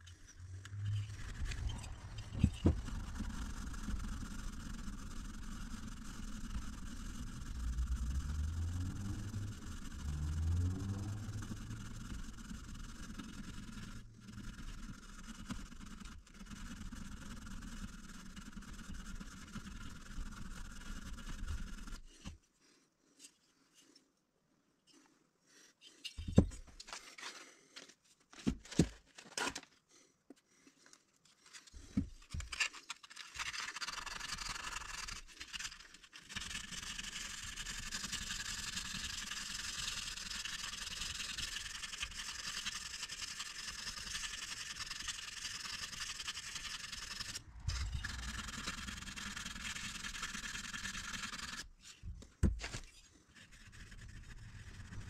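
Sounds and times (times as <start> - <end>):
sandpaper rubbing metal: 0.7 - 22.3, 32.3 - 52.0, 52.8 - 55.0.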